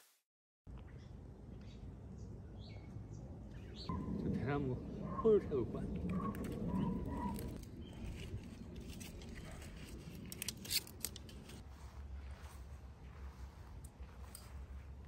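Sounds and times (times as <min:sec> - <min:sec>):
dry twigs crackling: 0:05.8 - 0:11.7
twigs snapping: 0:06.0 - 0:11.6.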